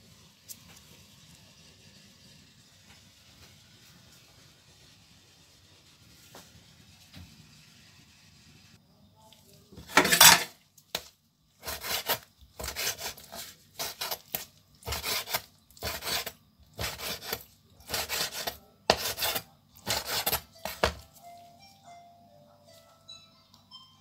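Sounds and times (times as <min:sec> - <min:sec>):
knife slicing meat on wooden board: 0:10.9 - 0:21.0.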